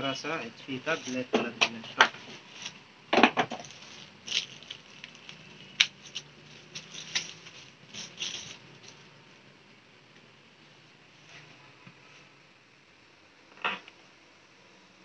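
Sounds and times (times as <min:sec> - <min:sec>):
plastic bag crinkling: 0:03.4 - 0:09.1.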